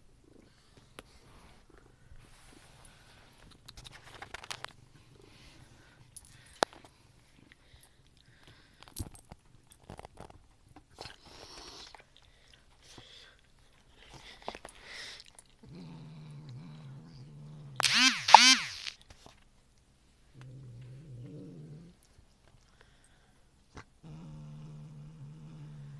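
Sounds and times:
cat chewing and crunching food: 0.0 - 17.9, 18.9 - 25.9
cat growling low: 15.4 - 17.8, 20.3 - 22.2, 23.9 - 25.9.

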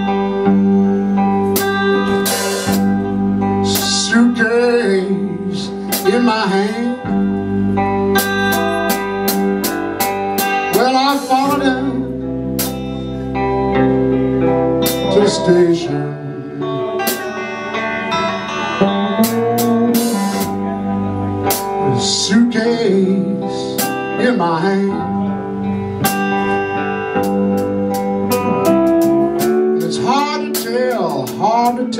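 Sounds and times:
electric guitars: 0.0 - 31.9
man singing: 3.6 - 7.3, 10.6 - 12.3, 14.8 - 17.4, 18.1 - 25.4, 29.4 - 31.9.

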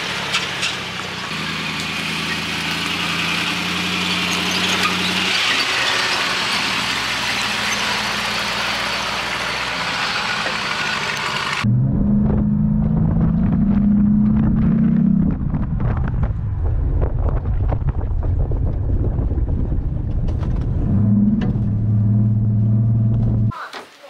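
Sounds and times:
engine drone: 0.0 - 23.5
wind on microphone: 11.8 - 21.7.

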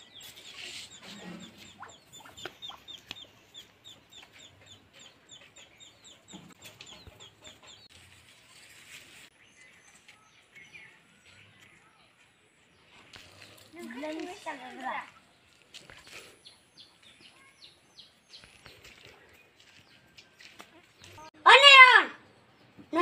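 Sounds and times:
chicks peeping: 0.0 - 8.0.

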